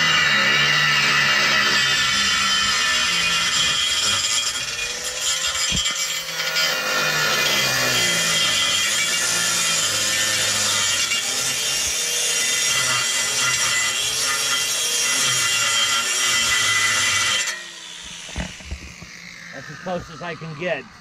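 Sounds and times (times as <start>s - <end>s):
power tool cutting metal: 0.0s - 21.0s.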